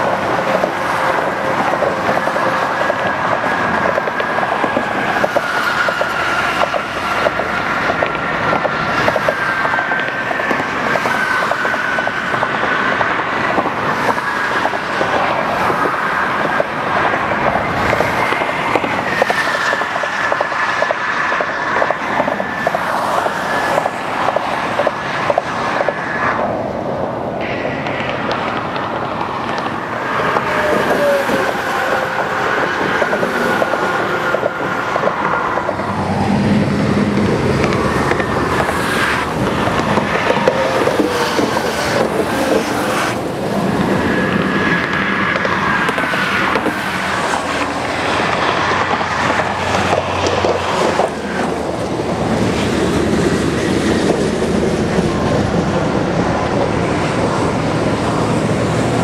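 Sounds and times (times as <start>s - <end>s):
rush of highway tyres: 0.0s - 59.0s
vehicles clacking over deck: 0.0s - 59.0s
high whine: 25.5s - 59.0s.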